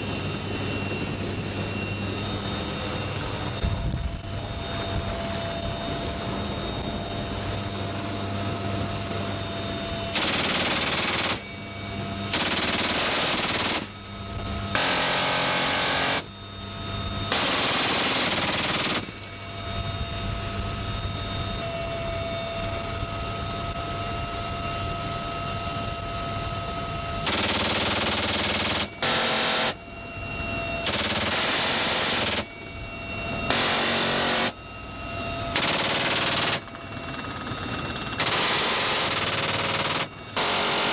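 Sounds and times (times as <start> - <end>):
helicopter turbine and rotor drone: 0.0 - 40.9
machine gun bursts: 10.2 - 11.5, 12.3 - 13.9, 14.8 - 16.2, 17.3 - 19.2, 27.2 - 29.8, 30.8 - 32.5, 33.5 - 34.6, 35.6 - 36.7, 38.2 - 40.9.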